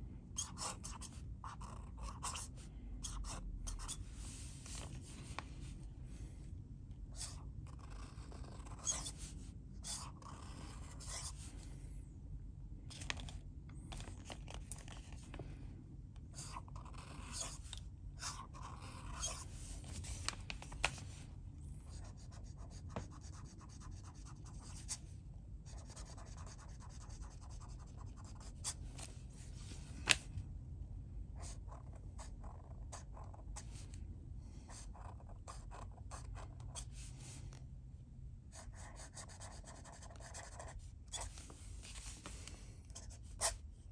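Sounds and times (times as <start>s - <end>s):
pen nib scratching paper: 0.4s - 4.0s, 7.2s - 11.4s, 16.4s - 19.7s, 38.6s - 41.4s.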